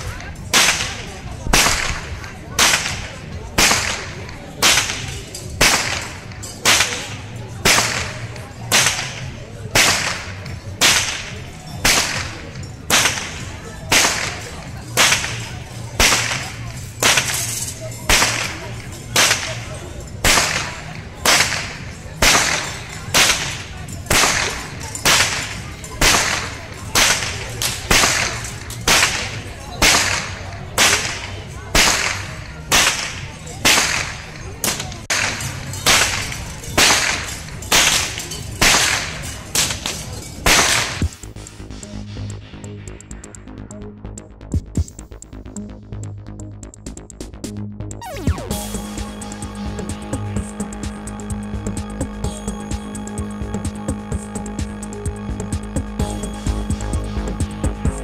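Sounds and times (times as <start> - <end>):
whip cracking: 0.0 - 41.2.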